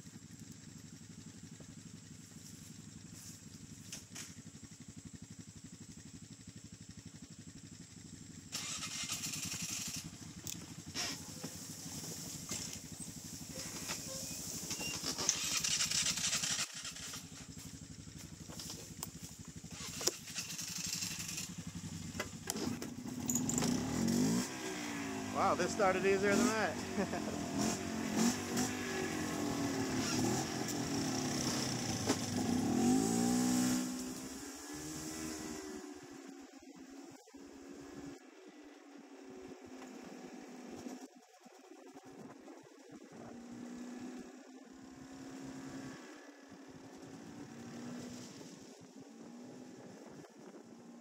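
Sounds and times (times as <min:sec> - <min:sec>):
quad bike engine idling: 0:00.0 - 0:45.3
hiss: 0:08.6 - 0:10.2, 0:10.8 - 0:17.4, 0:19.7 - 0:21.8.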